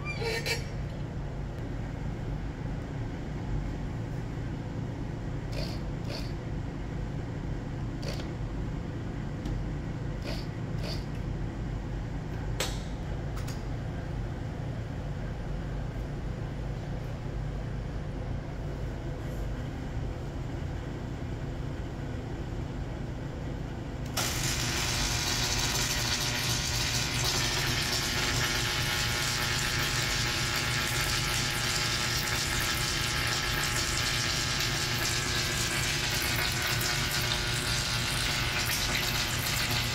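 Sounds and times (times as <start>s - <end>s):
steady low hum: 0.0s - 39.9s
welding arc hiss and crackle: 5.6s - 6.4s, 24.1s - 39.9s.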